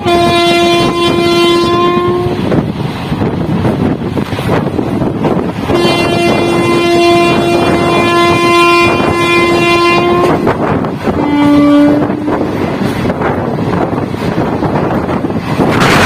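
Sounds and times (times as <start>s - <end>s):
locomotive horn blasts: 0.0s - 2.5s, 5.6s - 12.7s
moving train rumble and wind: 0.0s - 16.0s.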